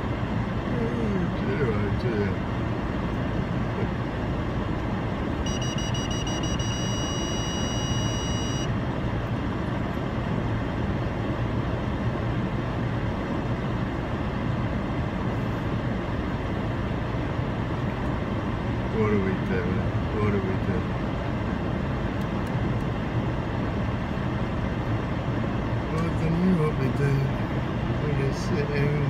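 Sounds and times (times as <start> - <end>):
high electronic beep: 5.4 - 8.7.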